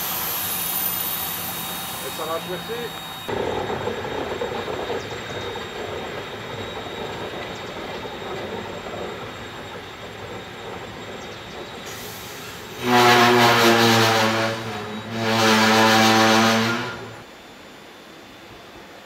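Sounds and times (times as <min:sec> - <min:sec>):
loud pitched sound with hiss: 0:00.0 - 0:03.5
freight train rail rumble: 0:00.0 - 0:17.4.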